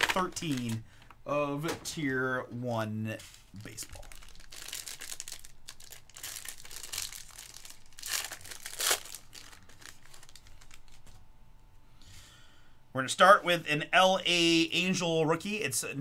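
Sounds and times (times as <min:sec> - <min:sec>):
foil wrapper crinkling: 0:00.0 - 0:01.1, 0:03.2 - 0:11.2
foil wrapper ripping: 0:03.4 - 0:11.2.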